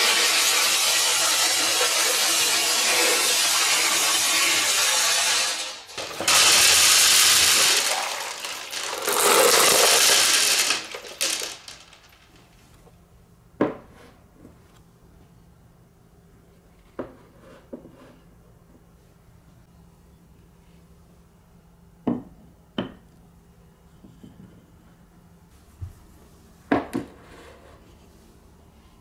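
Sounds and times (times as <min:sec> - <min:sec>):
marbles clattering in water tank: 0:00.0 - 0:12.7.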